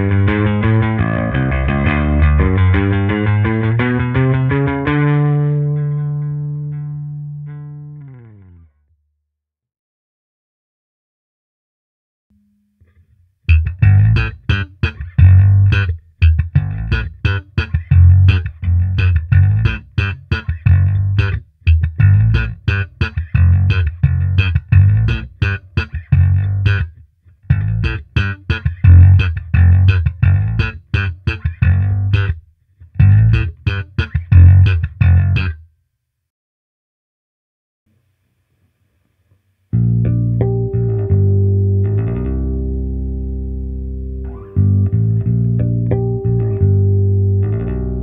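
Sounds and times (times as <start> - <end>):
electric bass riff: 0.0 - 8.7, 12.4 - 35.6, 39.7 - 48.0.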